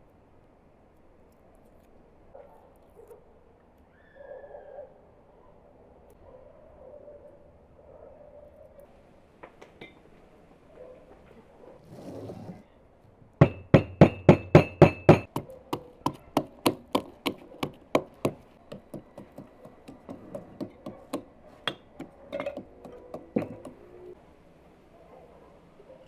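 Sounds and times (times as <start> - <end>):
pestle pounding in plastic mortar: 13.4 - 23.8.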